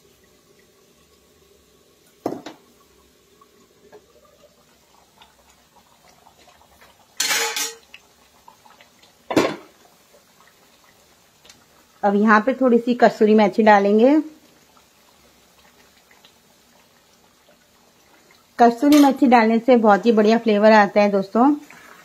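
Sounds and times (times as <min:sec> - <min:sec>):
glass lid clanking on metal pan: 0:07.2 - 0:07.9.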